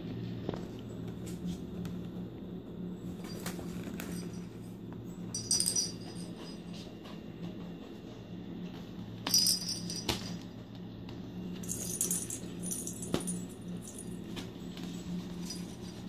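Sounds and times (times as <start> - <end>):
steady low hum: 0.0 - 16.0
jingle bell in ball toy: 5.3 - 6.9, 9.3 - 10.4, 11.6 - 14.3, 15.2 - 16.0.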